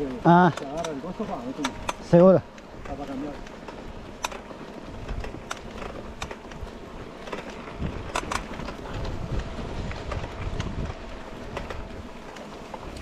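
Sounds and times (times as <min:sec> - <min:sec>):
bike clicks and rattles: 0:00.0 - 0:13.0
bike tyres rumbling on trail: 0:00.0 - 0:13.0.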